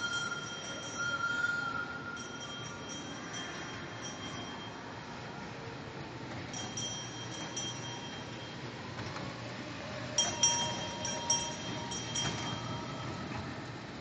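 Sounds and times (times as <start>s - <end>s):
train bell dinging: 0.0s - 5.3s, 6.5s - 9.0s, 10.1s - 13.5s.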